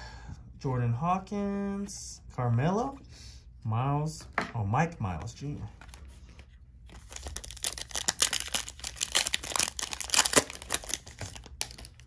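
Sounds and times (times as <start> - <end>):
plastic wrapper tearing and crinkling: 6.9 - 12.0.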